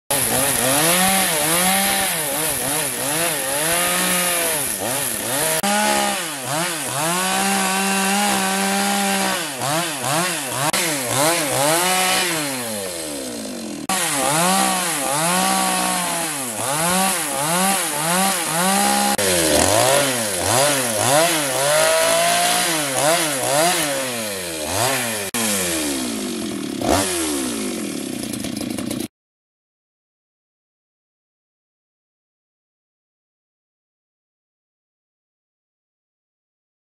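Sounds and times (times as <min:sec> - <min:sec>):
chainsaw cutting wood: 0:00.1 - 0:29.1.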